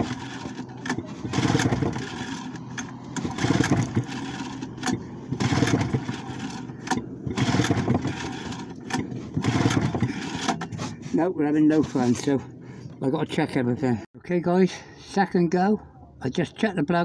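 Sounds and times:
outboard engine pull-cord cranking: 0.0 - 13.1.

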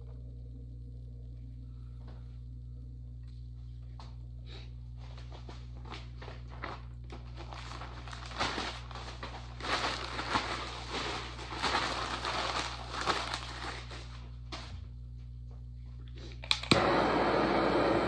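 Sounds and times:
steady low hum: 0.0 - 18.0
rustling and crinkling: 5.0 - 14.8.

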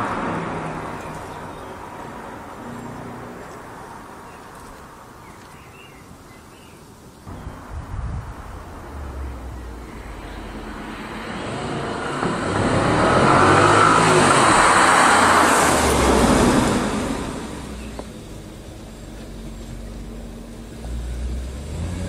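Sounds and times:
car engine driving past: 7.3 - 18.0.

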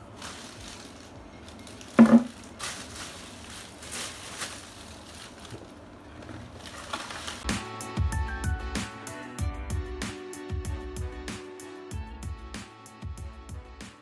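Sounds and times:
plastic bag rustling: 0.0 - 7.5.

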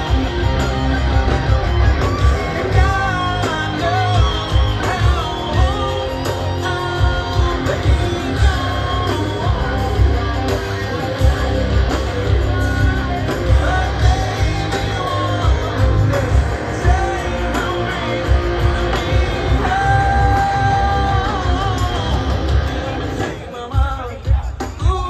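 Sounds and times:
bass guitar: 0.0 - 23.5
drums: 0.0 - 25.0
electric guitars: 0.0 - 25.0
man singing lead vocal: 0.0 - 25.0.

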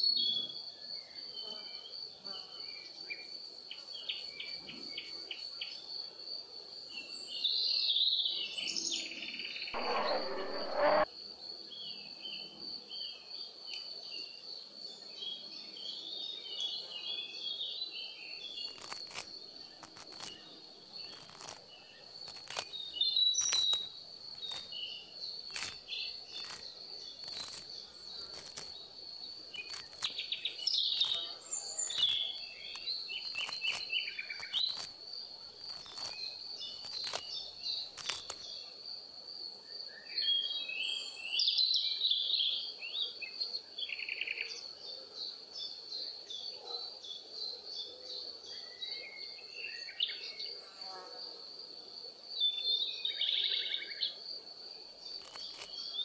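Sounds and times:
rushing noise: 9.8 - 11.0
pulsing insect trill: 9.8 - 13.4, 17.3 - 39.9.

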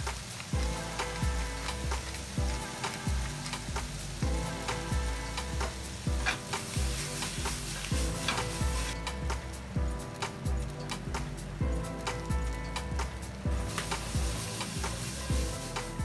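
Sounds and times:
vegetables sizzling in a frying pan: 0.0 - 11.0, 11.9 - 16.0
background music: 0.0 - 16.0
low drum thumps: 0.0 - 16.0.

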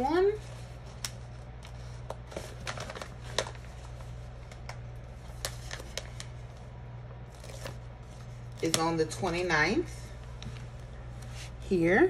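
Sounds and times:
steady low hum: 0.0 - 12.0
paper stickers rustling and ticking: 7.4 - 9.5.

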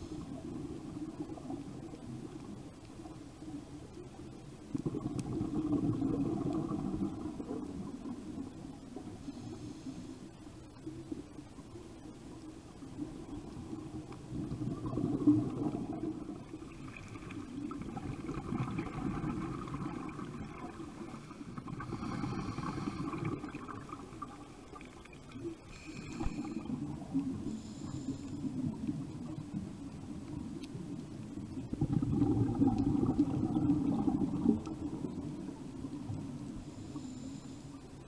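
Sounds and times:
exhaled bubbles gurgling: 0.0 - 9.9, 10.8 - 37.4
underwater regulator breathing: 21.0 - 23.7, 25.6 - 28.7, 36.6 - 37.9.

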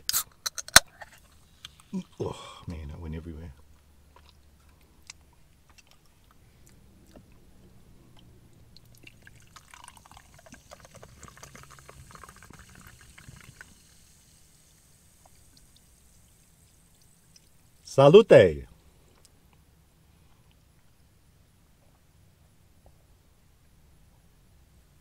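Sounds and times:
soda pouring into a glass: 8.8 - 17.7
soda fizzing: 8.8 - 18.0.

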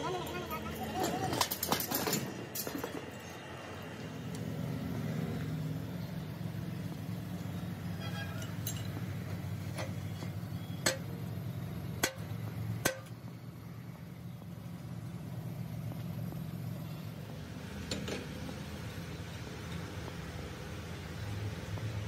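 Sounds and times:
sharp metallic clinks: 7.8 - 11.4.

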